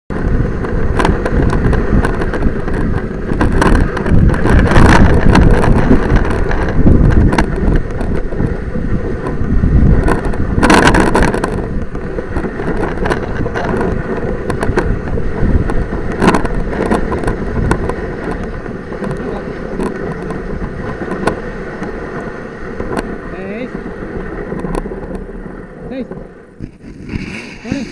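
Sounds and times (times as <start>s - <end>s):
sled knocking and rattling: 0.1s - 27.9s
sled runners scraping on snow: 0.2s - 27.9s.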